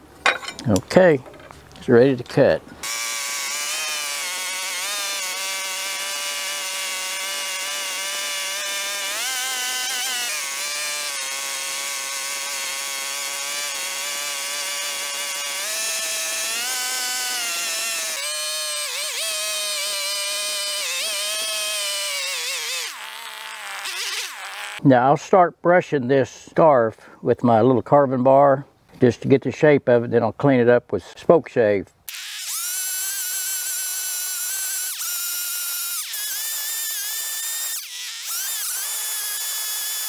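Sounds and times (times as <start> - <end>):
small chainsaw running: 2.8 - 24.8, 32.1 - 40.0.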